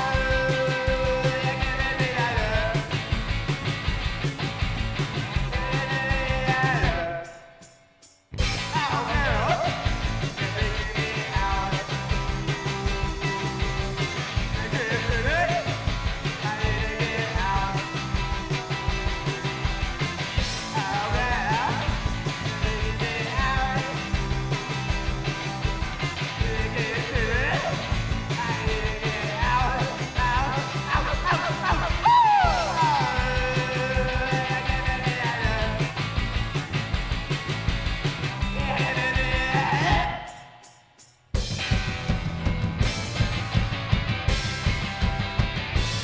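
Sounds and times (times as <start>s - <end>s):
shouted lead vocal: 0.0s - 3.0s, 5.4s - 7.4s, 8.4s - 12.4s, 14.4s - 19.3s, 20.4s - 24.8s, 26.3s - 36.0s, 38.4s - 40.7s
rock band playing: 0.0s - 7.6s, 8.3s - 40.7s, 41.3s - 46.0s.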